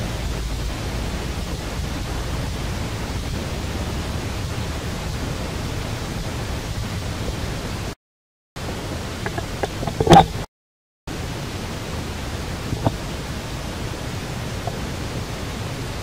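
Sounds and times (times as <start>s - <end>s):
steady low rushing noise: 0.0s - 7.8s.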